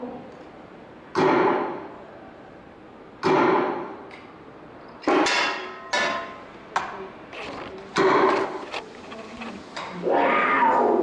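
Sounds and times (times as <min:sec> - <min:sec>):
gun sound effect bangs: 0:01.2 - 0:01.9, 0:03.2 - 0:04.0.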